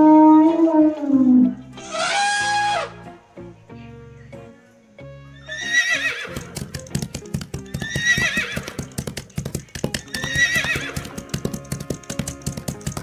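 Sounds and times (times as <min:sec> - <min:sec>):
horse whinnying: 0:00.0 - 0:03.0, 0:05.4 - 0:06.6, 0:07.8 - 0:08.9, 0:10.0 - 0:11.2
galloping hoofbeats: 0:06.0 - 0:13.0.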